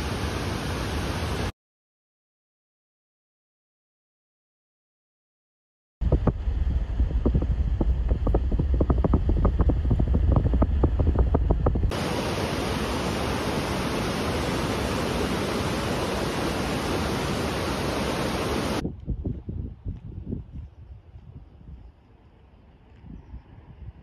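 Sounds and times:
fast-flowing water rushing: 0.0 - 1.5, 11.9 - 18.8
wind buffeting microphone: 6.0 - 24.0.

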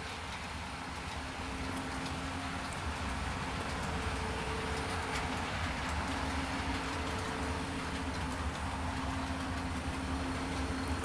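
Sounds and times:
model train running: 0.0 - 11.0.

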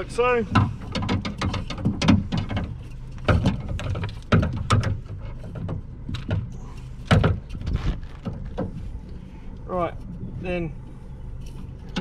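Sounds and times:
steady low hum: 0.0 - 12.0
metal wire clicks and rattles: 0.5 - 8.7.

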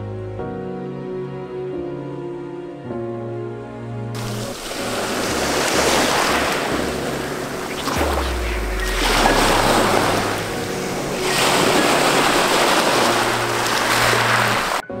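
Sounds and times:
waves washing over pebbles: 4.2 - 14.9.

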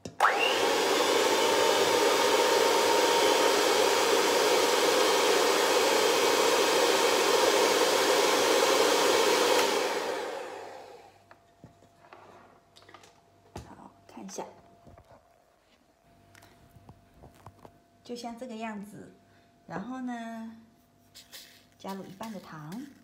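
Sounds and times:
electric hand mixer whirring: 0.1 - 11.2.

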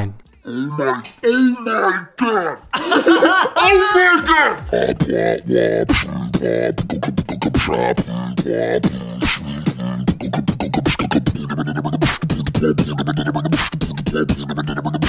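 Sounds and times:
deep-voiced beatboxing: 4.2 - 15.0.

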